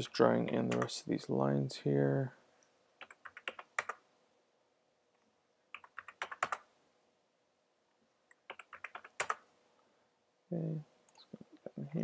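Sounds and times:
computer keyboard typing: 0:03.0 - 0:04.0, 0:05.7 - 0:06.7, 0:08.3 - 0:09.4.

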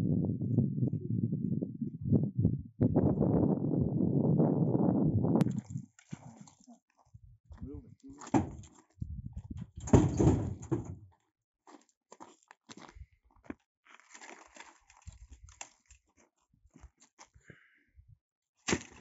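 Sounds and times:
dry brushwood crackling and rustling: 0:11.7 - 0:17.4.

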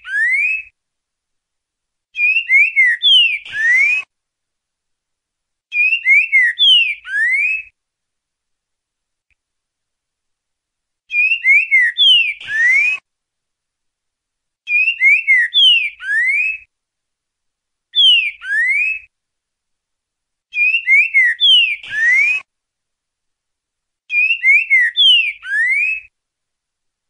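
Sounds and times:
bird singing whistled phrases: 0:00.0 - 0:00.7, 0:02.2 - 0:04.1, 0:05.7 - 0:07.7, 0:11.1 - 0:13.0, 0:14.7 - 0:16.7, 0:18.0 - 0:19.1, 0:20.5 - 0:22.5, 0:24.1 - 0:26.1.

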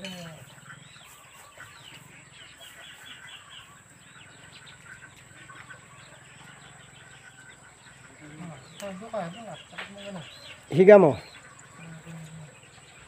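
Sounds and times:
chickens clucking: 0:00.0 - 0:13.0
small birds chirping: 0:00.0 - 0:13.0.

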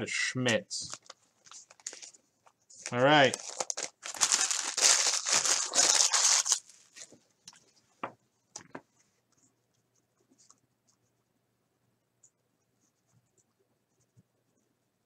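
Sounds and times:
plastic wrapper crinkling: 0:00.8 - 0:02.2, 0:02.8 - 0:07.6.

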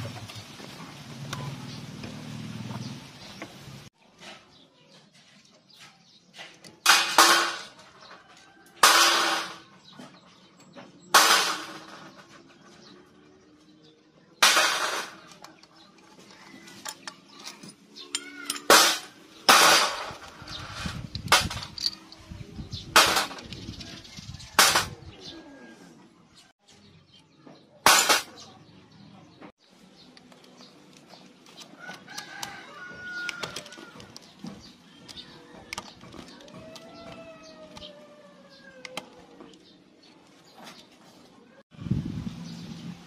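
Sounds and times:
hand tools clicking on bolts: 0:14.5 - 0:22.2
chicken and rooster calls: 0:24.4 - 0:26.2, 0:31.6 - 0:34.4, 0:35.0 - 0:39.2.

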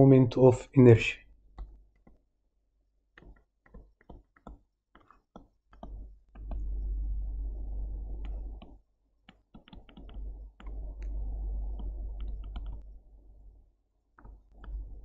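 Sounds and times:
stylus tapping on tablet: 0:03.2 - 0:06.7, 0:08.2 - 0:11.2
low rumble: 0:06.4 - 0:08.6, 0:10.0 - 0:13.2.

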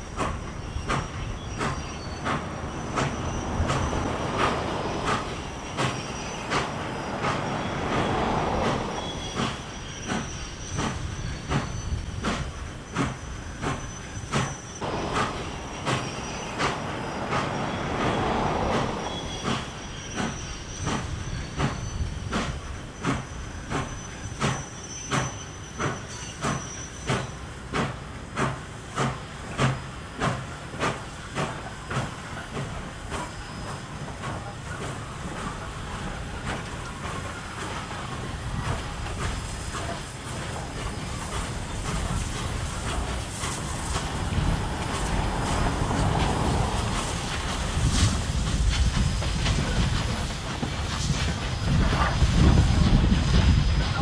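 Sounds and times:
steam locomotive chuffing: 0:00.0 - 0:54.0
faint high squeal: 0:08.5 - 0:27.5.

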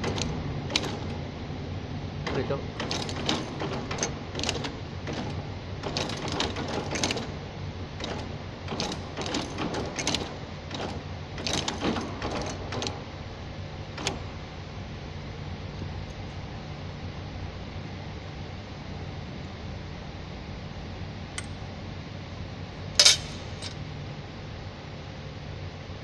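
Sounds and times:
machine clattering clicks: 0:00.0 - 0:01.2, 0:02.2 - 0:07.4, 0:08.0 - 0:13.0, 0:13.9 - 0:14.3.

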